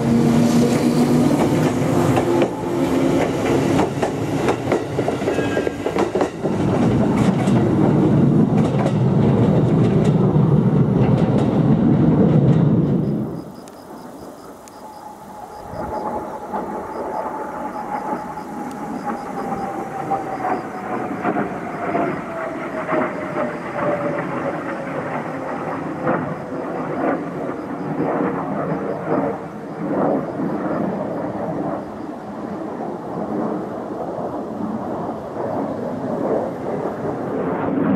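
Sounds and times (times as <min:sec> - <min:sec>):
jet roaring overhead: 0:00.0 - 0:37.9
jet whine falling in pitch: 0:12.8 - 0:32.2.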